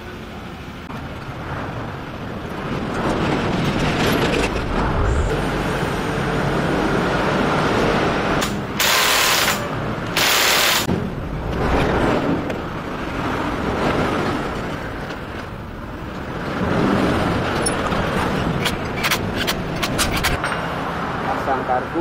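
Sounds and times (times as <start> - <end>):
low steady rumble: 0.3 - 7.4.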